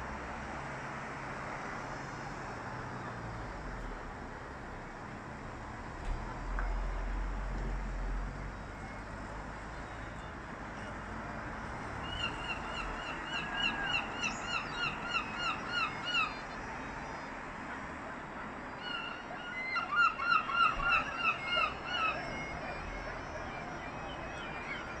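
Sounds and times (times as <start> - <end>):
gull calling: 12.0 - 16.5, 18.7 - 25.0.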